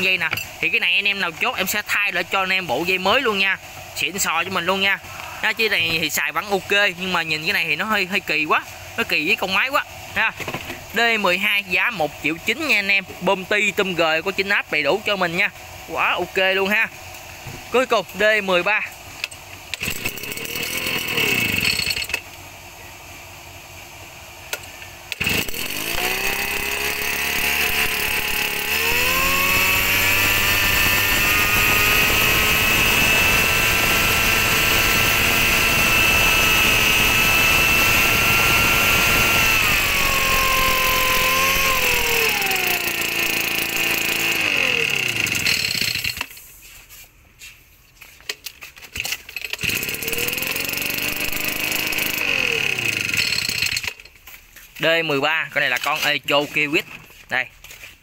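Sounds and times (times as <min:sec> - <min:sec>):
mist blower engine revving: 0:19.8 - 0:21.7, 0:25.2 - 0:45.6, 0:49.6 - 0:53.7.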